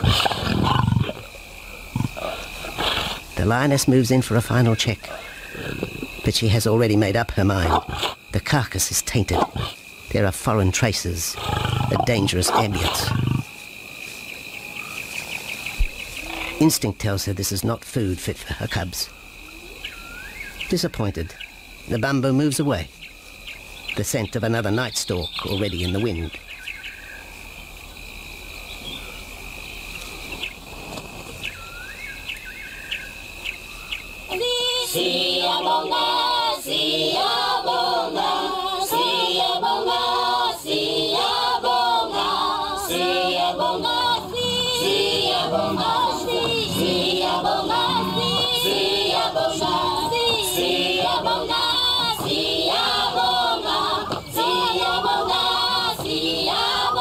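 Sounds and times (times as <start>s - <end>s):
steady high insect trill: 0.0s - 57.0s
choir singing: 34.3s - 57.0s.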